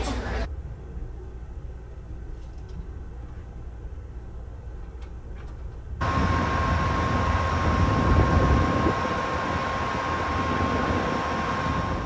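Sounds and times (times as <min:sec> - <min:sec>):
train riding rumble: 0:00.0 - 0:12.0
locomotive engine idling: 0:06.0 - 0:12.0
steady whine: 0:06.0 - 0:12.0.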